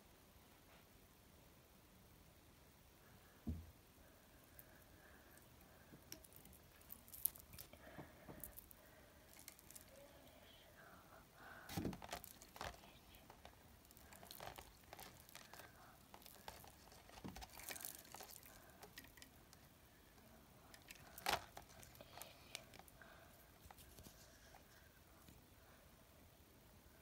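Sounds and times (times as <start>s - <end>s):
plastic beads clicking and rustling: 4.6s - 10.5s, 11.7s - 19.7s, 20.7s - 25.3s.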